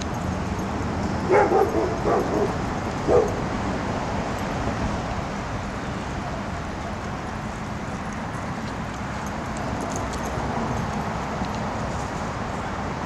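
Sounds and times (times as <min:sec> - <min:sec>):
dog barking: 0:01.2 - 0:03.5.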